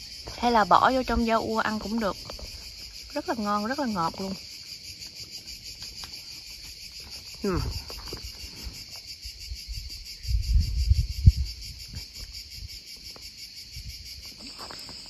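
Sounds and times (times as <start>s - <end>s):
dull low thumps and rustles: 9.3s - 12.8s.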